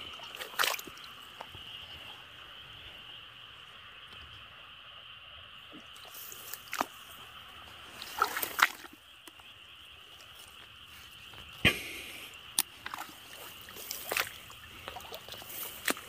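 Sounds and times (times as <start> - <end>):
water sloshing and splashing: 0.0 - 2.4, 5.7 - 11.6, 12.3 - 16.0.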